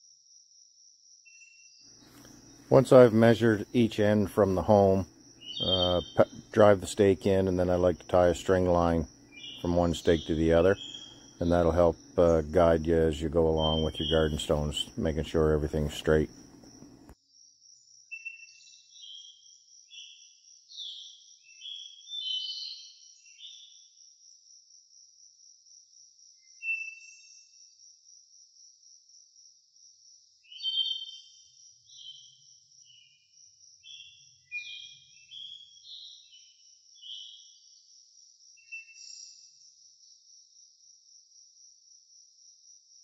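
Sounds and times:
insects trilling: 0:00.0 - 0:43.0
songbird whistling: 0:09.2 - 0:11.4.

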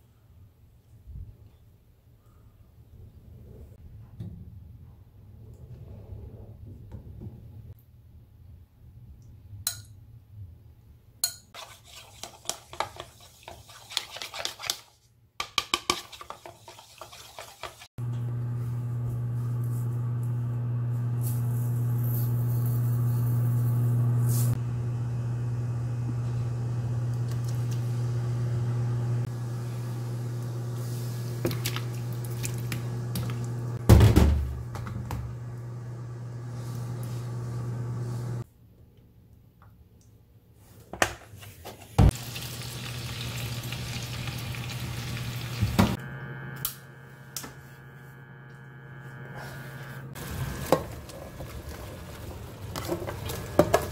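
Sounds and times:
metal spoon stirring in plastic bowl: 0:11.6 - 0:17.9
induction cooktop humming: 0:18.0 - 0:38.4, 0:42.0 - 0:53.9.

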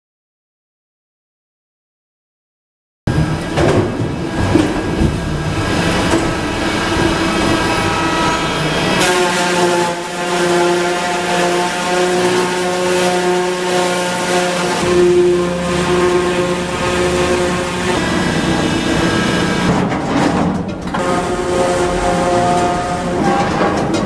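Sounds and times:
debarker cutter humming: 0:03.1 - 0:19.9.

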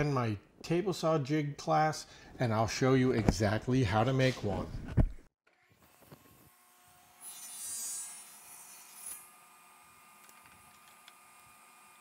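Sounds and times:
table saw whine: 0:05.5 - 0:12.0.

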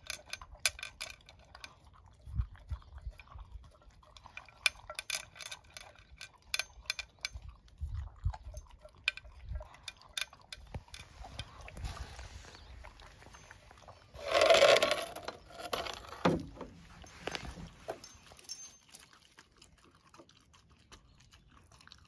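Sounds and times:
dog crunching food: 0:17.1 - 0:22.0.

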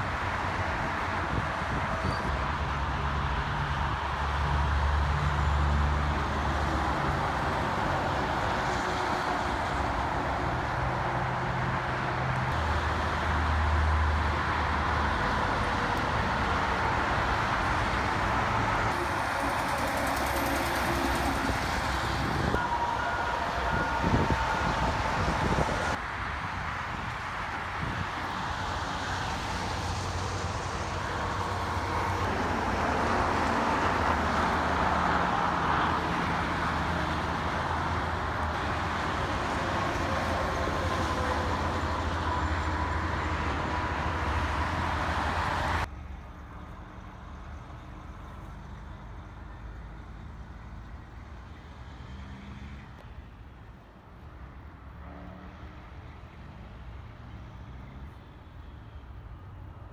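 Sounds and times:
diesel trucks droning: 0:00.0 - 0:53.7
highway traffic: 0:00.0 - 0:59.9.

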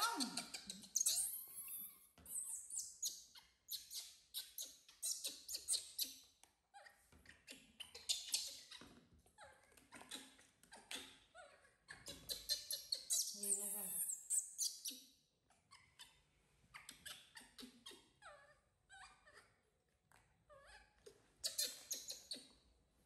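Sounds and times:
baby monkey squealing: 0:00.0 - 0:06.1, 0:09.4 - 0:15.0, 0:20.6 - 0:22.5.

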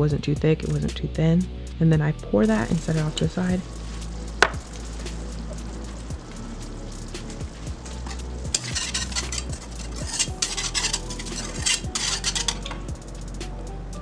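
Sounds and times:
whisk scraping and clicking on pan: 0:03.8 - 0:12.9.

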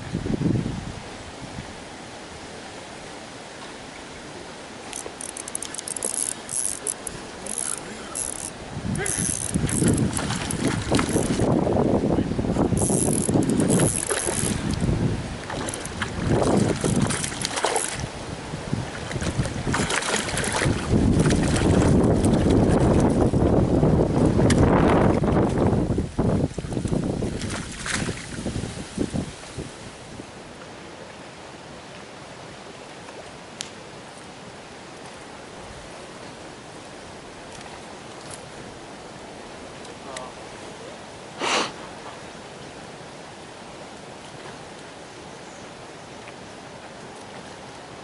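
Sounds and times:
wind buffeting microphone: 0:00.0 - 0:01.7, 0:07.0 - 0:30.2
outdoor noise hiss: 0:00.0 - 0:19.3, 0:23.2 - 0:48.0
fish splashing in water: 0:04.9 - 0:11.5, 0:12.8 - 0:18.2, 0:18.9 - 0:23.1.

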